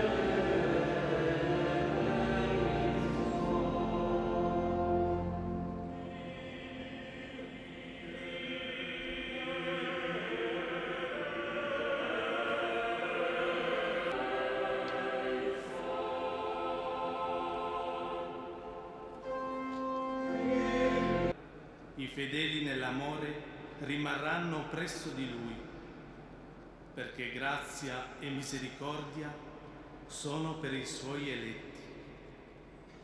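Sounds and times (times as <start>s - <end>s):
choir singing sacred music: 0.0s - 21.6s.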